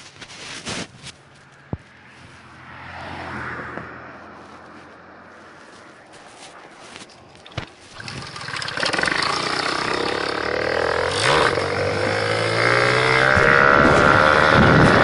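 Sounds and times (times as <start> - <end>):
road and wind hiss: 0.0 - 8.9, 10.3 - 15.0
moped engine accelerating: 8.0 - 15.0.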